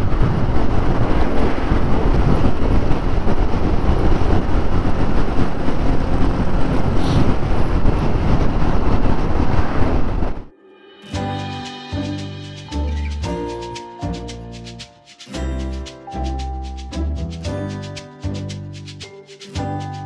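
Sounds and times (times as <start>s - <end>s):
wind rushing over microphone: 0.0s - 10.5s.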